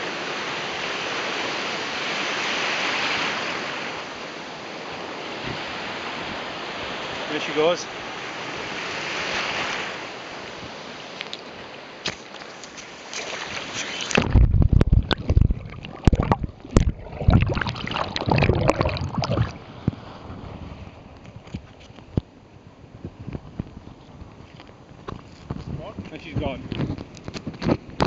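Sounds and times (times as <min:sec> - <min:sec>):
surf washing in: 0:00.0 - 0:21.2
water sloshing and splashing: 0:12.1 - 0:20.1
microphone handling knocks: 0:14.1 - 0:20.0.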